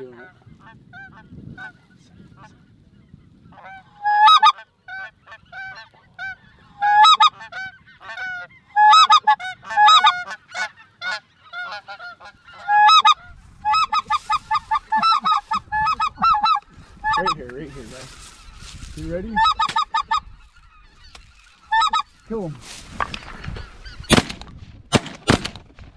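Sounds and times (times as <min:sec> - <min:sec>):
geese honking: 0:00.0 - 0:24.2.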